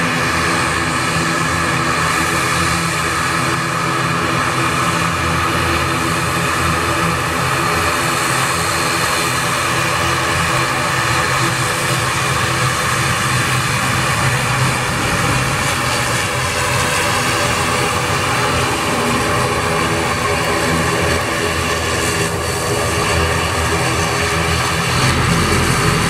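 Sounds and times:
turboprop engines droning: 0.0s - 26.0s.

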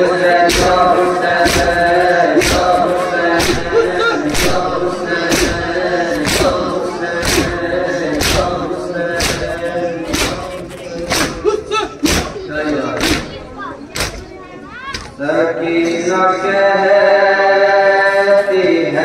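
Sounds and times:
men chanting together: 0.0s - 13.2s, 15.2s - 19.0s
chest-beating slaps: 0.4s - 8.6s, 9.2s - 12.4s, 13.0s - 14.2s.

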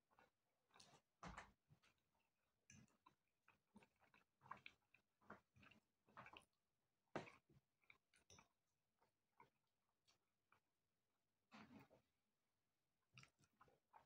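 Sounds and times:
chewing mouth sounds: 2.8s - 6.5s.

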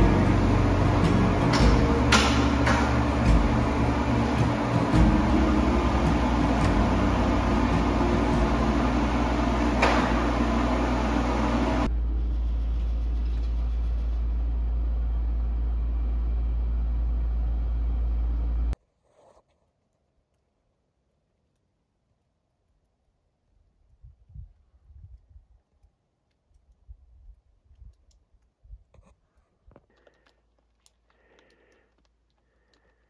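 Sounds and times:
machine hum with low drone: 0.0s - 18.8s.

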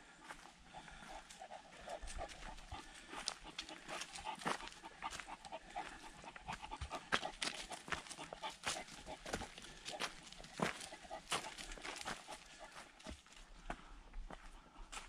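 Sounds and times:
dog panting: 0.0s - 15.0s
paws crunching on dry leaves: 0.3s - 15.0s.

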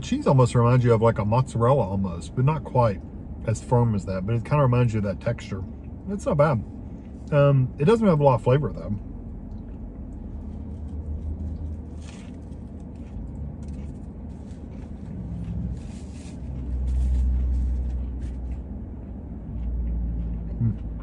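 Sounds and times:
low rumble in car cabin: 0.0s - 21.0s
man chewing: 9.2s - 21.0s.

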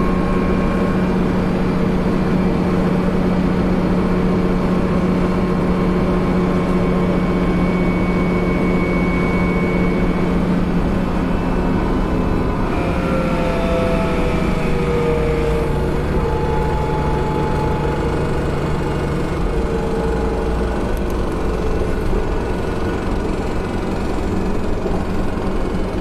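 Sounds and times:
bus engine droning: 0.0s - 26.0s.

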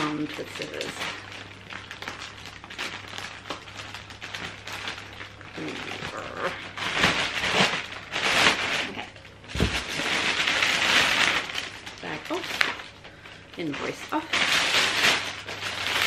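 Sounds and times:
plastic crinkling and rustling: 0.0s - 16.0s.

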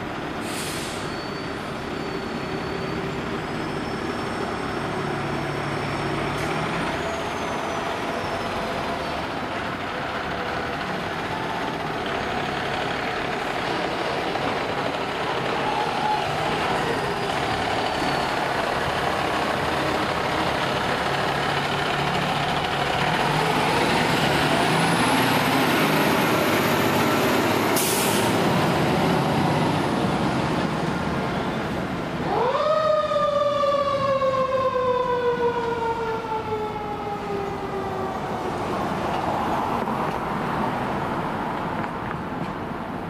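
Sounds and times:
air hiss: 0.4s - 1.1s
fire truck engine running: 3.2s - 39.2s
siren rising and winding down: 32.2s - 38.5s.

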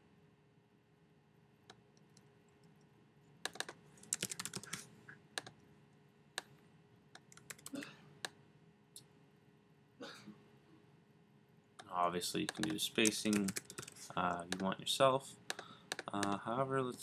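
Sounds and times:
computer keyboard typing: 3.4s - 4.8s, 7.2s - 7.8s, 12.4s - 14.7s, 15.5s - 16.4s.

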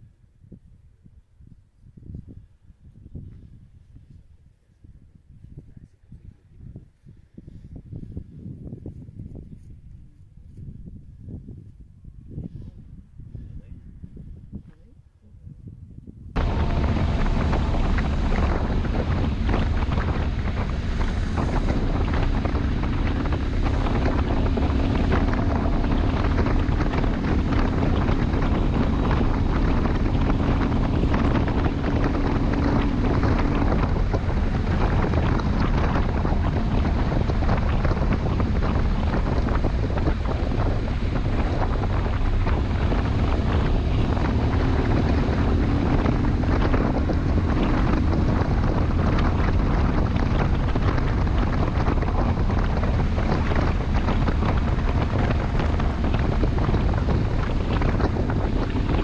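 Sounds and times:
wind buffeting microphone: 0.0s - 59.0s
motorcycle engine running: 16.4s - 59.0s.

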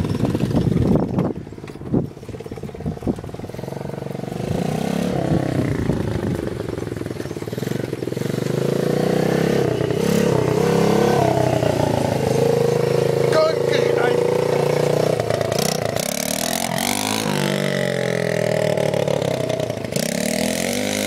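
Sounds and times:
motorbike engine revving: 0.0s - 21.0s.

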